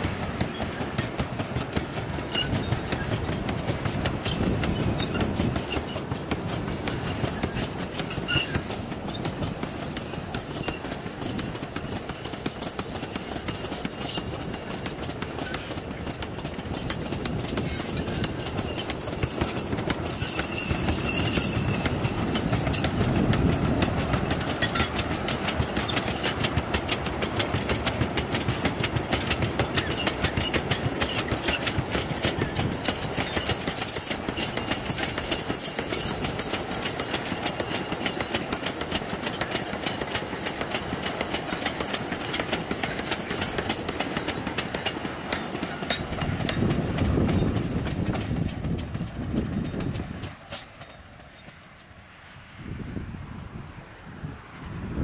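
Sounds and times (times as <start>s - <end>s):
train wheels clattering over rail joints: 0.0s - 52.2s
high squeal: 4.2s - 12.4s, 16.9s - 24.9s.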